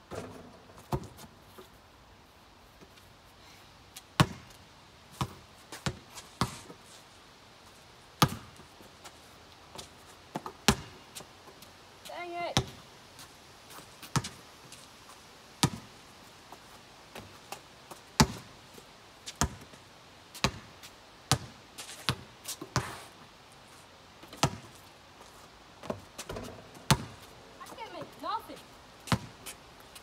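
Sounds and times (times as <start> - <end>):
basketball bouncing: 25.8 - 28.1, 29.1 - 29.4.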